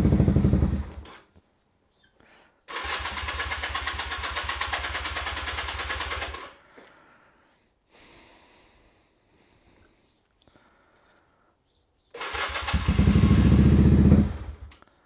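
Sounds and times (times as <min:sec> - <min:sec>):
electric starter cranking motorcycle engine: 0:02.7 - 0:06.6, 0:12.2 - 0:14.8.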